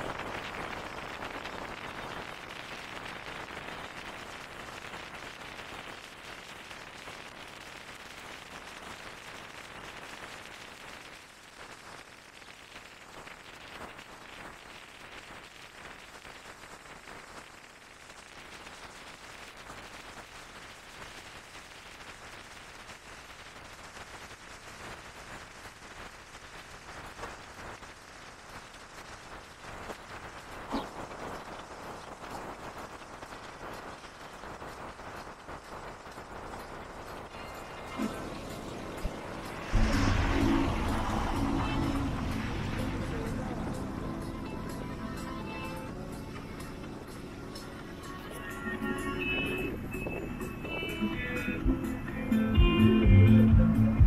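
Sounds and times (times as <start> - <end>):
faint crackle: 0.0 - 52.6
wind rushing through car window: 26.8 - 44.4.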